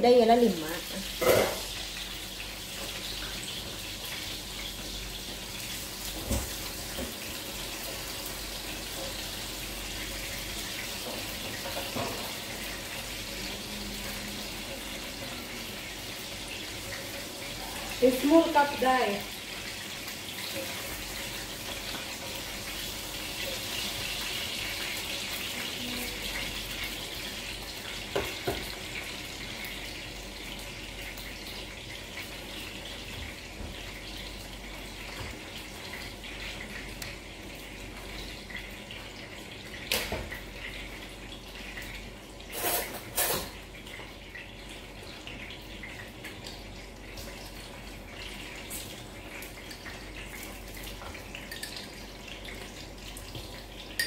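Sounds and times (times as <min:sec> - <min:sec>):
kitchen background hiss: 0:00.0 - 0:54.0
kitchenware clinking: 0:01.2 - 0:01.7, 0:42.5 - 0:43.6, 0:51.0 - 0:52.0.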